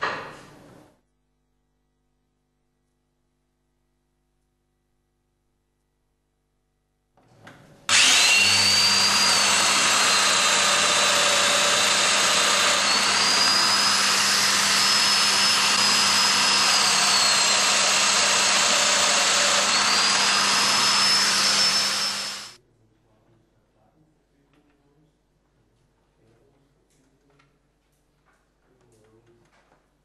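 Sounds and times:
power tool motor whining: 7.9s - 22.6s.

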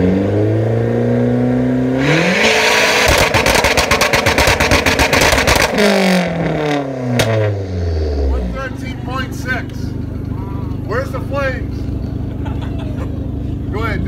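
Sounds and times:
car engine revving: 0.0s - 14.0s
exhaust pops: 2.9s - 7.6s.

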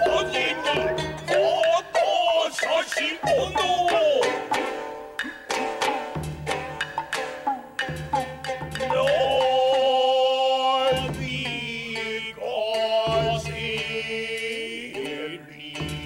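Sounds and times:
person chanting held notes: 0.0s - 4.5s.

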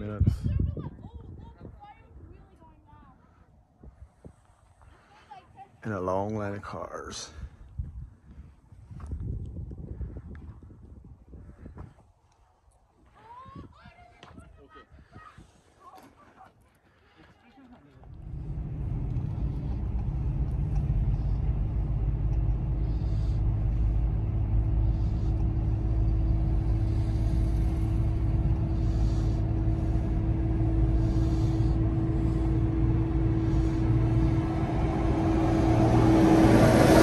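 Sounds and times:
car engine and road rumble: 17.9s - 37.0s
steady cabin hum: 18.1s - 37.0s.

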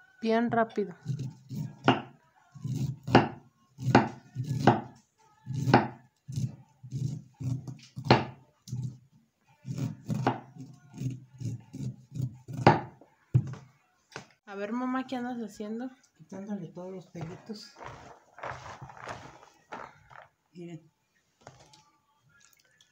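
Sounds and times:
knife scraping and knocking on board: 1.0s - 9.0s, 9.6s - 13.6s.

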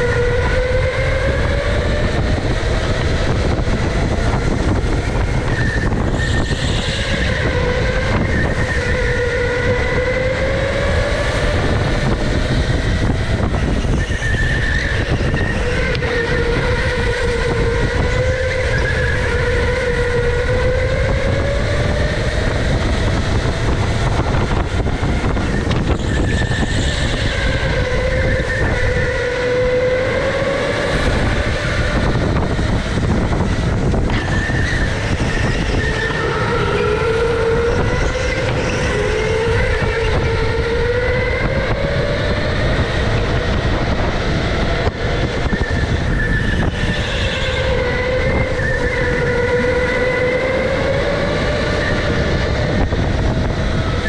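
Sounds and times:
electric go-kart motor whining: 0.0s - 54.0s
low rumble of kart on track: 0.0s - 54.0s.

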